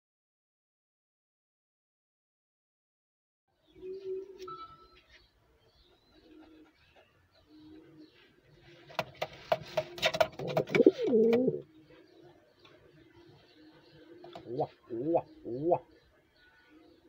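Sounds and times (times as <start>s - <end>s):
pigeon cooing: 3.7s - 5.1s, 5.8s - 17.0s
pigeon sharp clicks: 8.9s - 11.6s.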